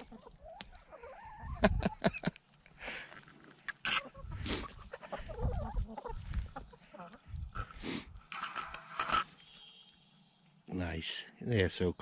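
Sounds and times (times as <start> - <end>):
hens clucking: 0.0 - 2.6, 3.3 - 9.2.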